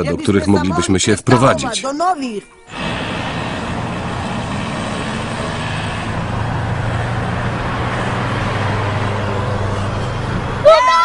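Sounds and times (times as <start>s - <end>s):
road noise: 0.0s - 11.0s
vehicle engine running: 2.7s - 10.8s.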